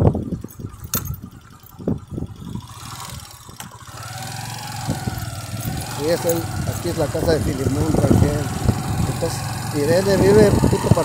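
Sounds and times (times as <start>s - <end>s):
motorcycle engine running: 0.0s - 11.0s
knocks and rattles on gravel: 0.2s - 4.2s, 4.8s - 7.2s.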